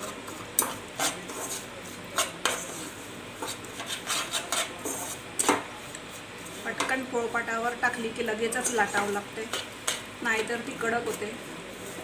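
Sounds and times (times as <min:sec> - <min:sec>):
metal spoon scraping saucepan: 0:02.2 - 0:05.5, 0:08.5 - 0:10.1.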